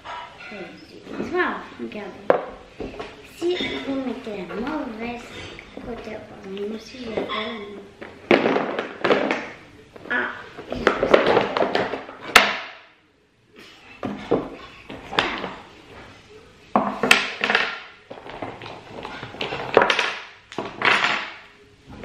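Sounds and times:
wooden blocks clacking: 0:08.0 - 0:09.6, 0:10.6 - 0:12.9, 0:16.8 - 0:21.5.

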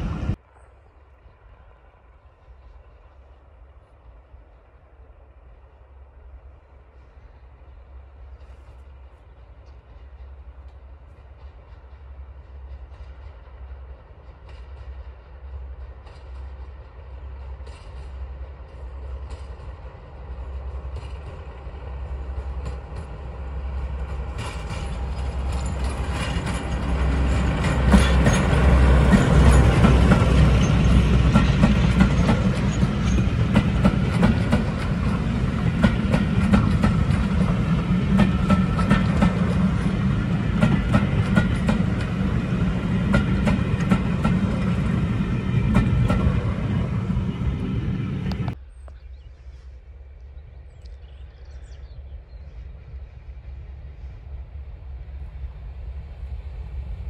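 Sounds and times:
diesel locomotive engine thrum: 0:00.0 - 0:00.4, 0:08.3 - 0:48.6
train wheels clattering: 0:08.2 - 0:48.6.

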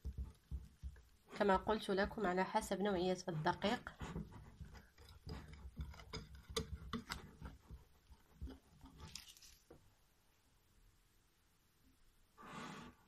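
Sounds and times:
whisk squelching in batter: 0:00.0 - 0:09.5.

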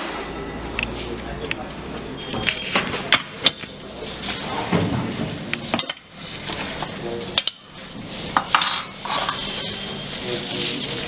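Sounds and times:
metal tongs clinking on metal tray: 0:07.4 - 0:07.7, 0:08.4 - 0:09.8.

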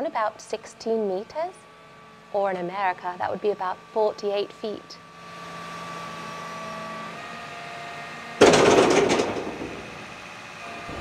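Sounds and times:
excavator running: 0:06.0 - 0:11.0.

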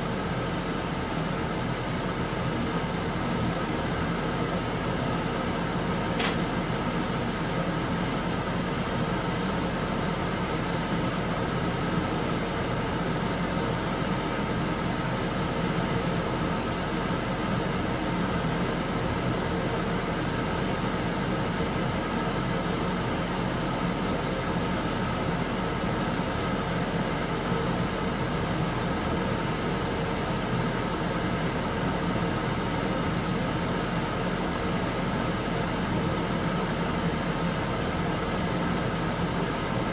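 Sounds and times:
sharp click: 0:06.2 - 0:06.5.

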